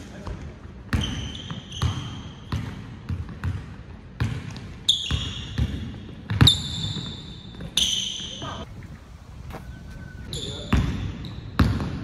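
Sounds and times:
basketball bouncing on court: 0.2s - 8.7s, 10.3s - 12.0s
high ringing tone: 9.4s - 10.8s.

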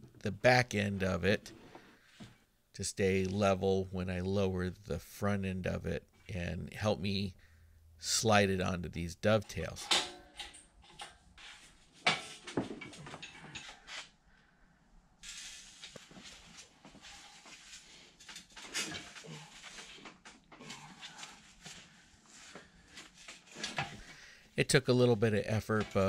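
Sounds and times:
metal scraping: 9.3s - 14.1s.

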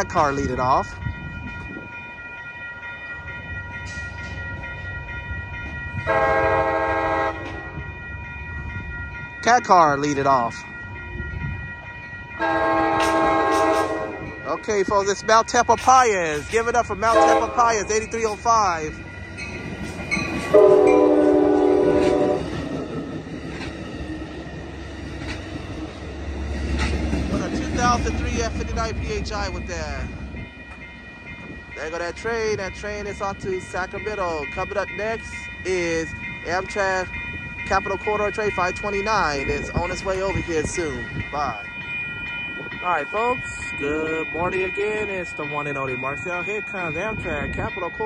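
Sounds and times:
train rumbling: 0.0s - 48.0s
train horn chord blast: 6.1s - 7.7s, 12.4s - 14.4s, 17.1s - 17.7s, 20.5s - 22.6s.

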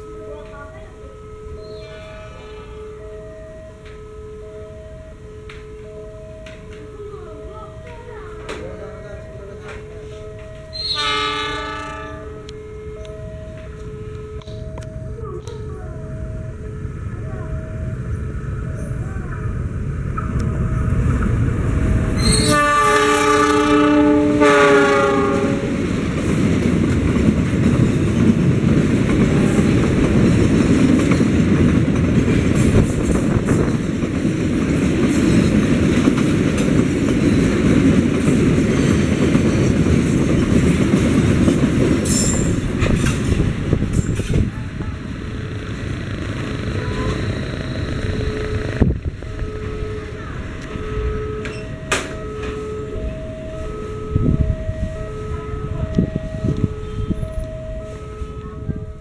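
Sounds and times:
train wagons rumbling over rails: 0.0s - 59.0s
locomotive horn: 9.4s - 14.9s, 22.2s - 26.0s, 46.6s - 59.0s.

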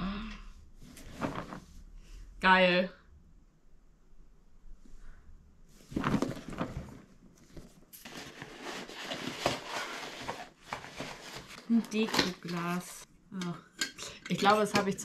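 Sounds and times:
wrapping paper rustling: 5.9s - 13.0s.

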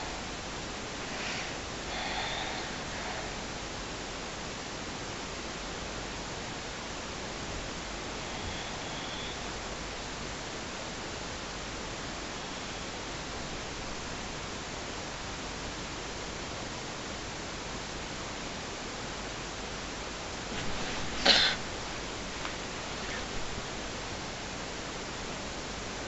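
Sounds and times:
microphone hiss: 0.0s - 26.0s
bedding rustle: 20.3s - 24.0s.

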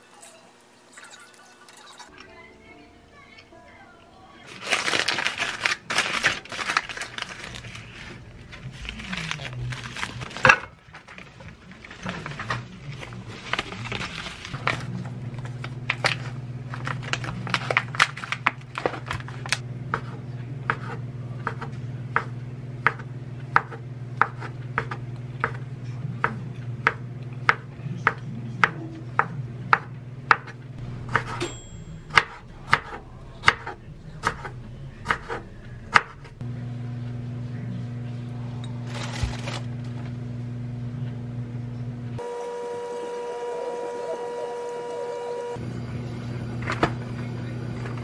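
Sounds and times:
steady low hum: 5.9s - 48.0s
knife chopping on wooden board: 19.9s - 25.6s, 26.2s - 31.5s.

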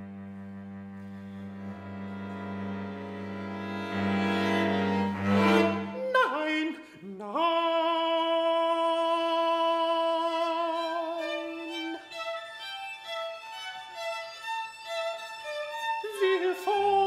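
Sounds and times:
bowed string chord: 0.0s - 6.1s
string quartet: 0.0s - 6.7s, 9.3s - 17.0s
violin notes: 0.0s - 7.0s, 9.0s - 17.0s.

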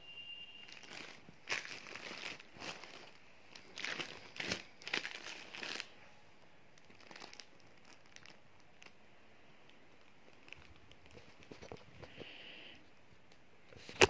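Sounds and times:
plastic wrapping crinkling: 0.6s - 12.4s.

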